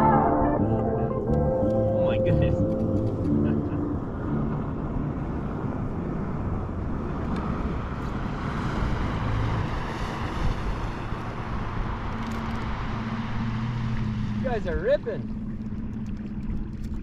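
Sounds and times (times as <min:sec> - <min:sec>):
motorboat engine: 0:00.0 - 0:17.0
wind and water rushing: 0:02.0 - 0:17.0.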